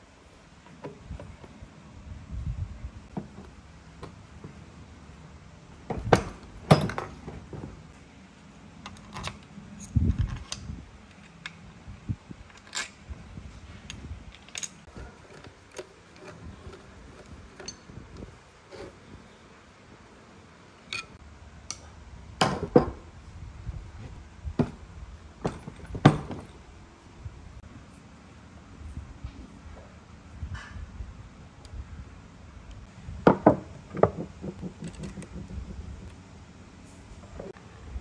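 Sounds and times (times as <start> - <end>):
metal parts clinking on metal: 12.5 - 13.0, 14.3 - 18.0.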